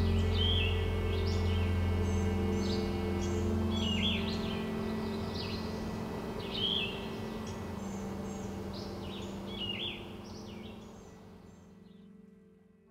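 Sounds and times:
low sustained tones: 0:00.0 - 0:12.9
songbirds chirping: 0:00.0 - 0:12.9.

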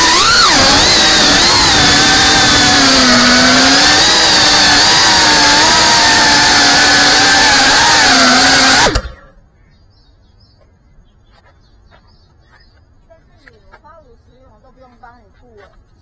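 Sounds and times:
drone motors whining: 0:00.0 - 0:09.3.

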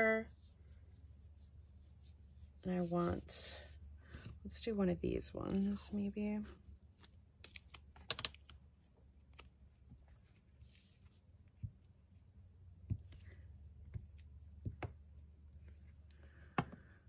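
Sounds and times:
low steady hum: 0:00.0 - 0:17.0
soft paper rustle: 0:05.4 - 0:16.2.

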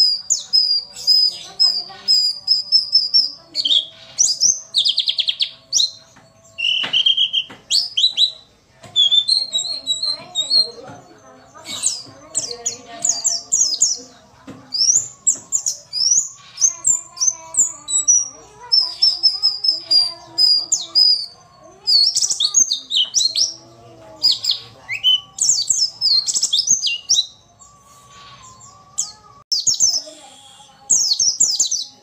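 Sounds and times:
bird chirping rapidly: 0:00.0 - 0:06.0, 0:06.6 - 0:10.8, 0:14.7 - 0:23.6, 0:24.2 - 0:28.8.

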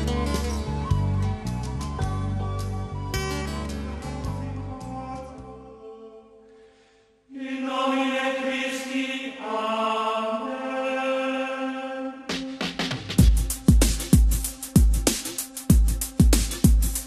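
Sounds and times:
choir-like chant: 0:04.4 - 0:06.6, 0:07.2 - 0:13.2
electronic track with drum beat: 0:12.3 - 0:17.0.

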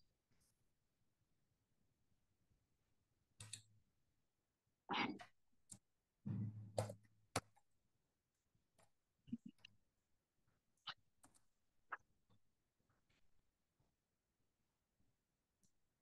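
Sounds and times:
faint keyboard typing: 0:03.4 - 0:03.7.

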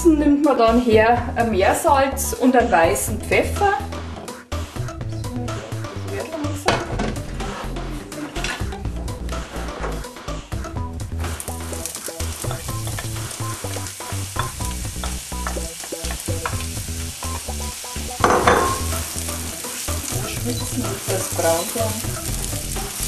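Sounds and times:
onion and garlic sizzling in oil: 0:11.0 - 0:23.0.

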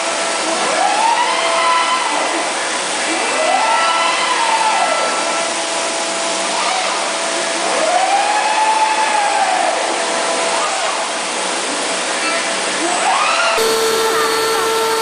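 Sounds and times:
machine whine: 0:09.1 - 0:15.0
machine hiss with faint tones: 0:13.6 - 0:15.0.

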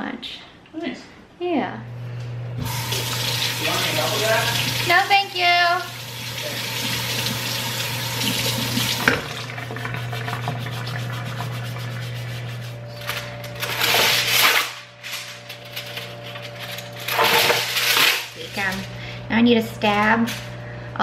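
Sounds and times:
kitchen tap running: 0:02.6 - 0:12.6
potato being scrubbed: 0:10.4 - 0:12.9
aluminium foil crinkling: 0:12.1 - 0:19.0.

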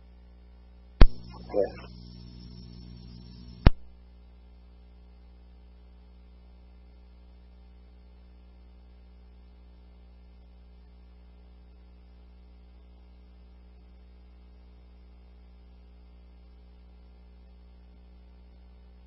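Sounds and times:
low electrical hum: 0:00.0 - 0:19.0
loud click: 0:01.0 - 0:01.5, 0:03.6 - 0:03.9.

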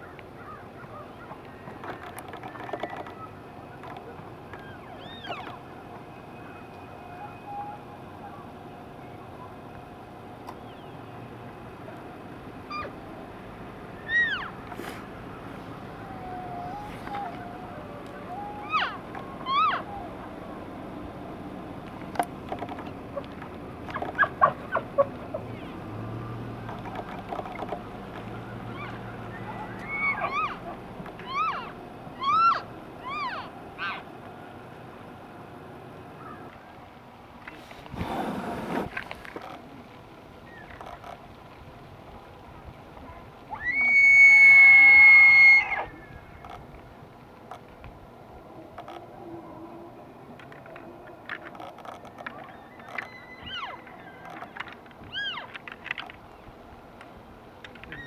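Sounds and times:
elk calling: 0:14.0 - 0:14.6, 0:16.0 - 0:20.3, 0:28.7 - 0:34.1.

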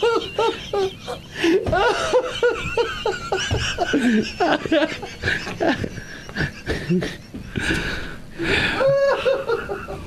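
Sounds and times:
man laughing: 0:00.0 - 0:10.0.

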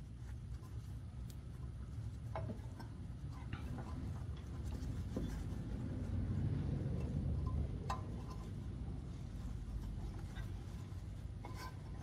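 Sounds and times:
low steady rumble: 0:00.0 - 0:12.0
cloth rustling: 0:08.1 - 0:12.0.

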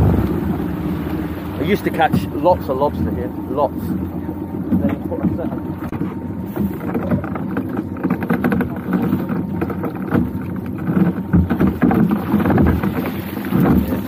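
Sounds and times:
wind on microphone: 0:00.0 - 0:02.4
water against boat hull: 0:00.0 - 0:14.0
knocks and clatter on board: 0:01.8 - 0:14.0.

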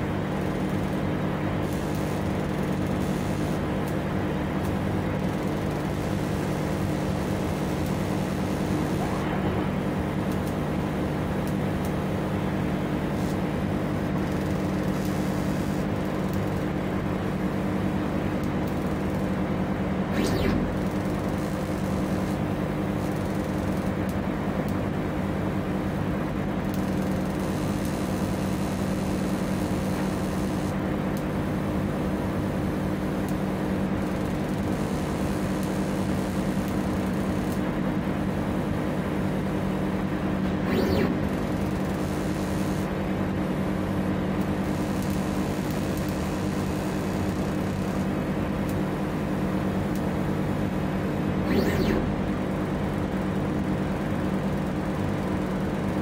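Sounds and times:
laser engraver humming: 0:00.0 - 0:30.8, 0:31.5 - 0:56.0.

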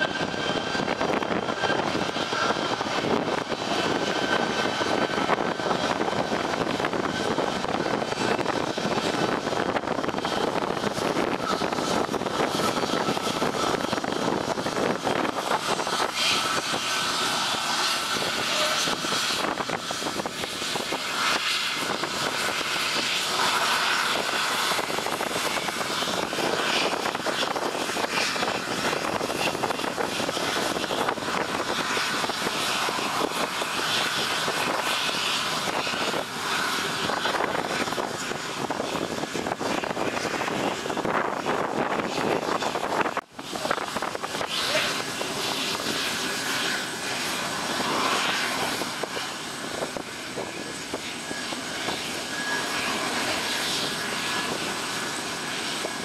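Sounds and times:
jet engines roaring: 0:00.0 - 0:56.0.

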